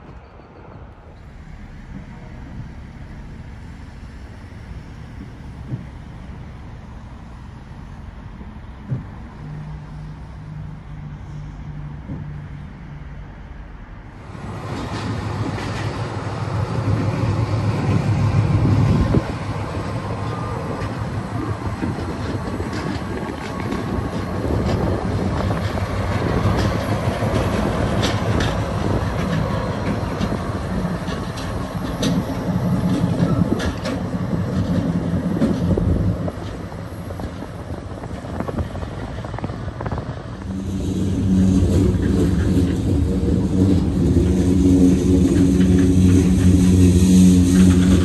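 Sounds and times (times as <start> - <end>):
freight train rumbling: 0.0 - 48.0
wheel clicks over rail joints: 20.2 - 37.5.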